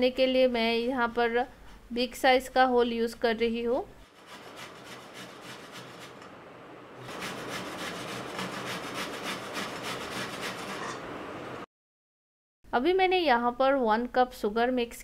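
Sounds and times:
coconut grated on metal grater: 4.1s - 6.3s, 7.0s - 11.1s.

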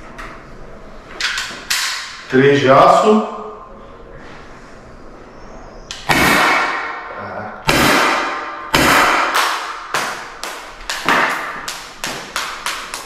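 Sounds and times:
pistol shots with ringing tail: 6.0s - 7.0s, 7.6s - 9.9s.

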